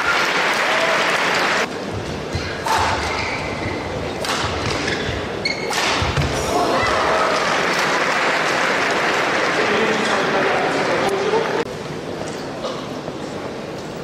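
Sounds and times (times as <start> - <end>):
crowd noise in hall: 0.0 - 14.0
shoe squeaks: 2.3 - 3.9, 4.8 - 5.8
racket striking shuttlecock: 4.2 - 6.3.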